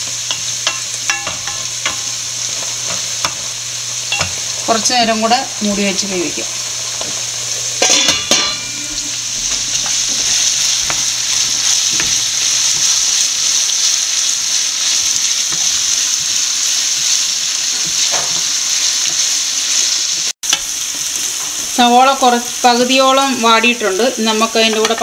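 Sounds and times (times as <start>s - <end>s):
onions sizzling in oil: 0.0s - 25.0s
metal lid clinking on pot: 7.8s - 8.8s.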